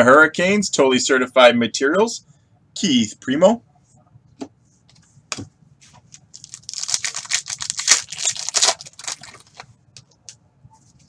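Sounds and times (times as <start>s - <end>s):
wrapper being torn and crinkled: 6.3s - 9.7s.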